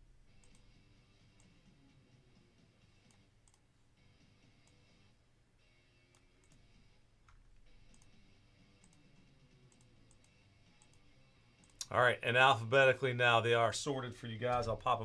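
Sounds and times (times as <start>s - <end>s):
low room hum: 0.0s - 15.0s
faint computer mouse clicks: 0.4s - 0.7s, 6.1s - 8.2s, 8.8s - 9.1s, 9.7s - 11.0s.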